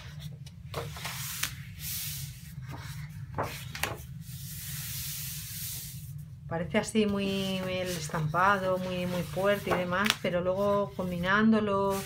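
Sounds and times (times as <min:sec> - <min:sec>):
paper sheets rustling and sliding: 0:00.0 - 0:06.1, 0:07.0 - 0:12.0
paper flicks: 0:09.7 - 0:10.3.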